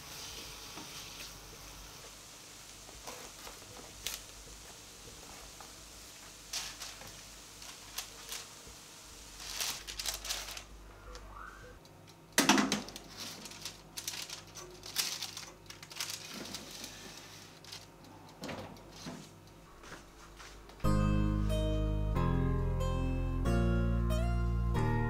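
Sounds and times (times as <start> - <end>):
parchment paper rustling: 3.0 - 11.3, 12.7 - 18.0.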